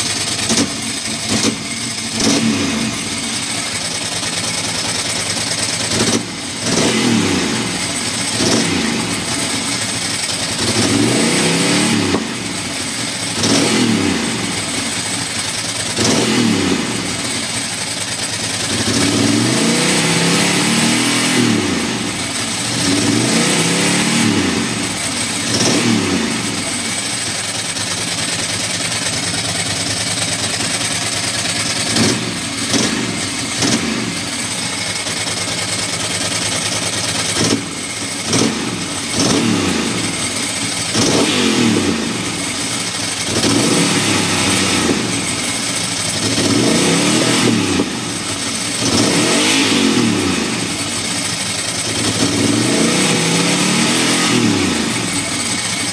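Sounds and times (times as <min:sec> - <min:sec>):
engine misfire: 0:00.0 - 0:55.9
motorcycle engine revving: 0:00.0 - 0:55.9.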